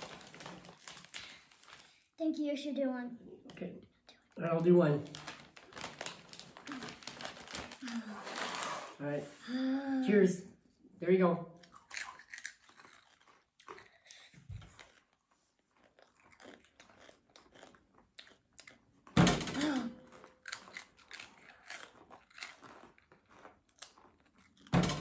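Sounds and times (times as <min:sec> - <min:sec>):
chips crunching: 0:11.6 - 0:18.8, 0:20.0 - 0:24.8.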